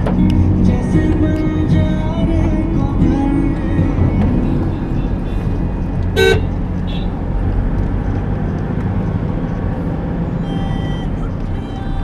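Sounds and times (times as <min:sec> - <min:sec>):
car engine and road noise: 0:00.0 - 0:12.0
vehicle horn toot: 0:04.4 - 0:05.6, 0:06.2 - 0:07.2, 0:10.4 - 0:12.0.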